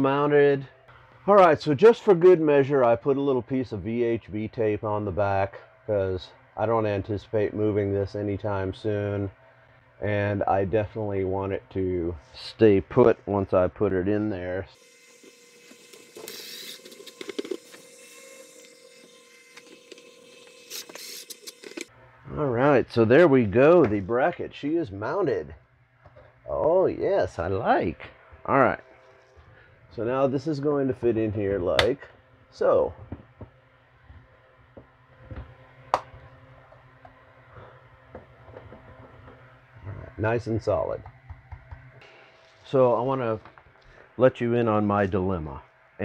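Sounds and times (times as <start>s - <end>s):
faint steady hum: 0.0s - 46.0s
cordless drill driving screw: 14.8s - 21.9s.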